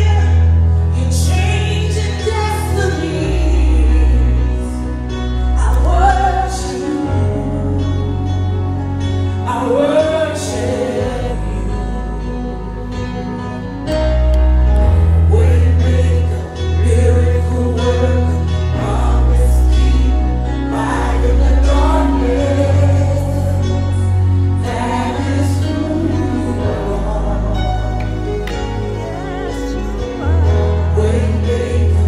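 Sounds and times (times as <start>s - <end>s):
woman singing lead vocal: 0.0s - 4.9s
low bass chords: 0.0s - 32.0s
backing singers: 14.8s - 32.0s.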